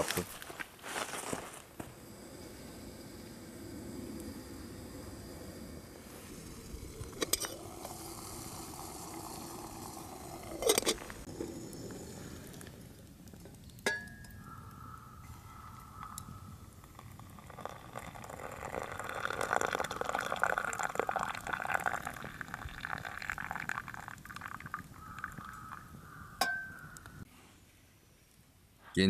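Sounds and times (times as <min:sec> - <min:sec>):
water pouring into mug: 0:02.0 - 0:11.9, 0:16.8 - 0:25.9.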